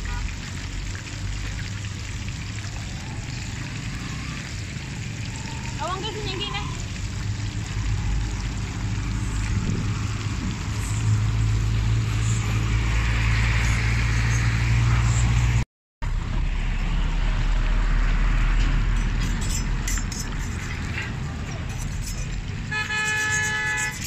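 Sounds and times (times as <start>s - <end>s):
fish deep-frying in oil: 0.0s - 15.4s.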